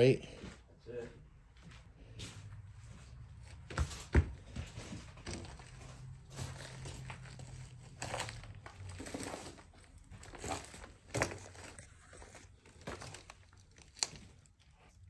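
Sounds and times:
debris crunching underfoot: 3.5 - 15.0.

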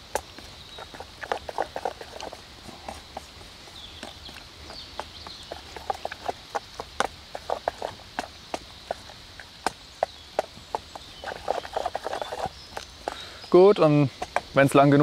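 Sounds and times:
wooden spoon scraping metal pot: 10.8 - 13.2.

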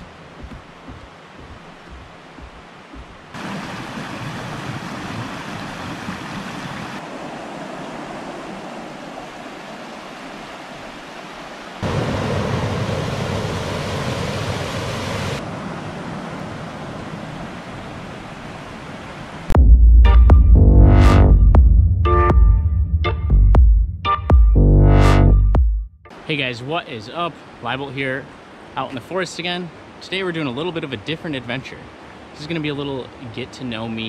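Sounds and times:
footsteps on wooden stairs: 0.0 - 4.3
water rushing over rocks: 0.0 - 19.6.

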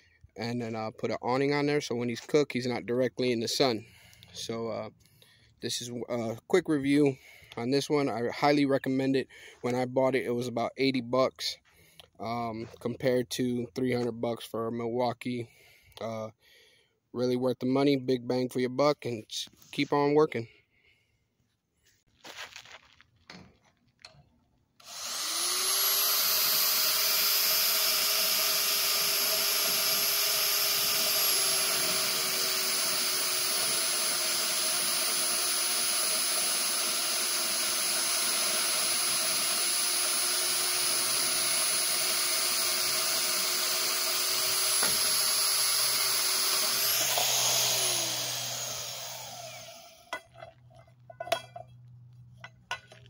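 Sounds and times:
band saw cutting metal: 24.8 - 50.2.

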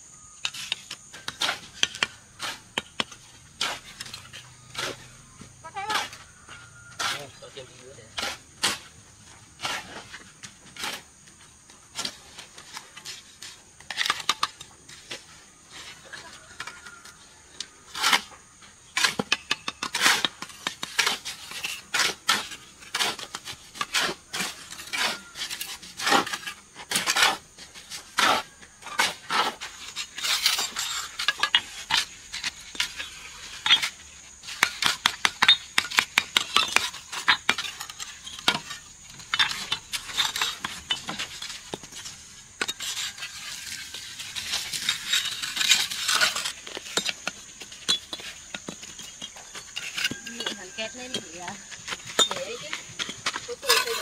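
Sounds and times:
clinks and knocks of hard objects: 29.7 - 54.0.

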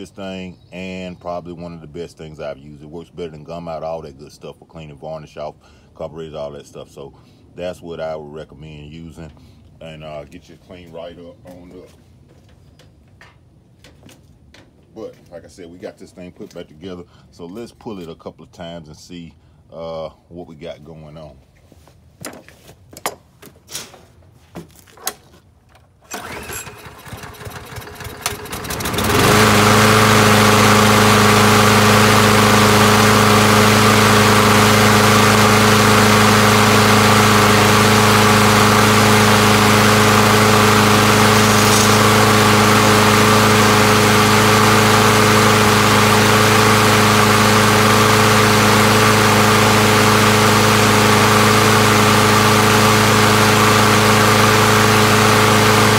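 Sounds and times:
mower engine cranking: 25.0 - 55.9
lawn mower engine running: 25.8 - 55.9.

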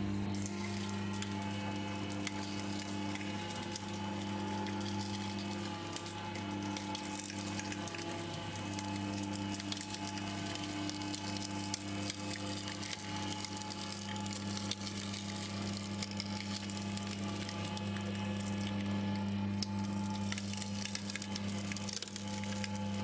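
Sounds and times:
electric motor humming: 0.0 - 23.0
rollers cracking sugarcane: 0.3 - 23.0.

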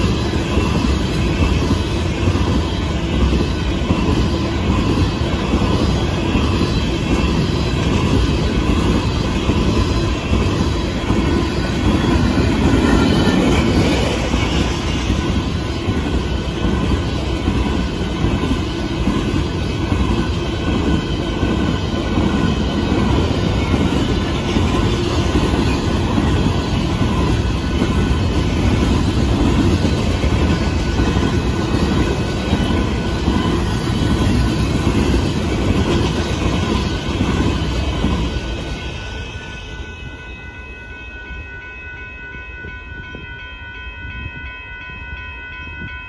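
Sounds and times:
train wheels rumbling on rails: 0.0 - 46.0.

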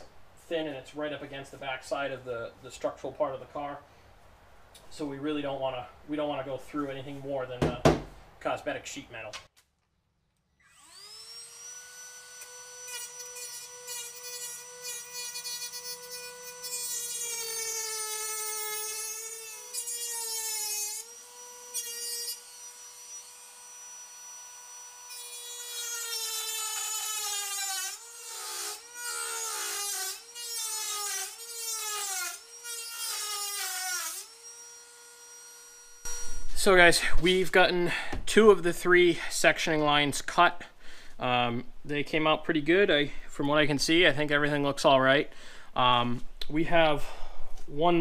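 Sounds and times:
rotary tool cutting sheet metal: 10.8 - 22.4, 24.7 - 34.6.

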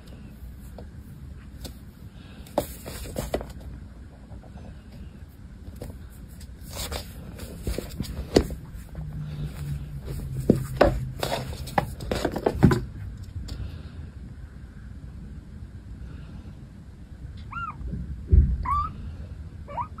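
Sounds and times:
low steady hum: 0.0 - 20.0
kitten scuffling on wooden floor: 5.6 - 12.9.

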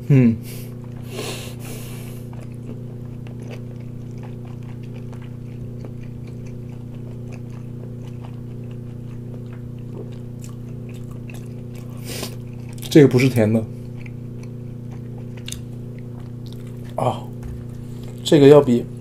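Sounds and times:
low electrical hum: 0.0 - 19.0
person biting crisp chicken: 0.8 - 13.0
chewing clicks: 2.3 - 13.0, 13.8 - 17.0.

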